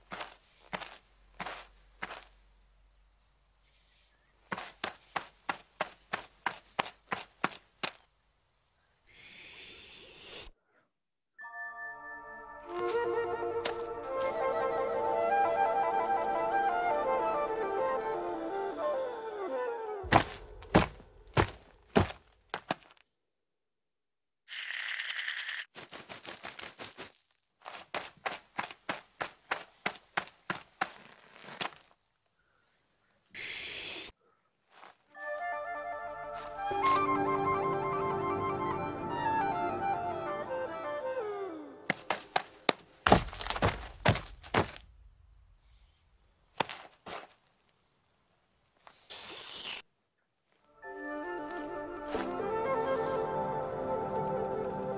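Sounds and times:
soft thuds: 20.0s - 22.8s
short burst of hiss: 49.1s - 49.8s.

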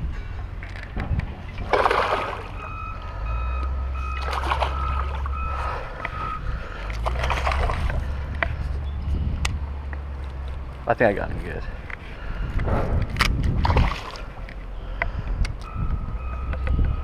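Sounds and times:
water splashing: 1.6s - 2.8s, 4.0s - 6.2s, 6.9s - 8.2s, 13.5s - 14.5s.

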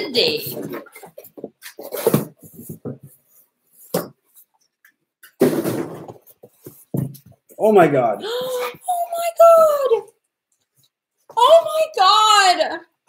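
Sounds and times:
scrapes and knocks: 0.1s - 7.6s.

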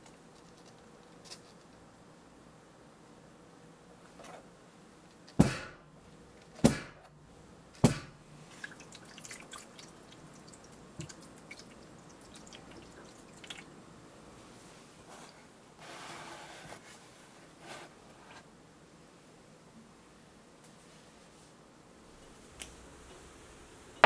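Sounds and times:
water trickling into tray: 8.4s - 13.7s.

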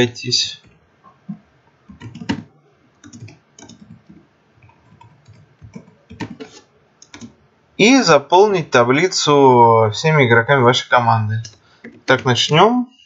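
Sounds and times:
keyboard typing clicks: 0.6s - 7.4s.

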